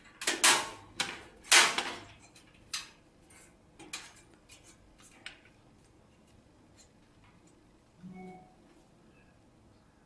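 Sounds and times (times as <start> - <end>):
sheet metal clicks and clacks: 0.0 - 5.6.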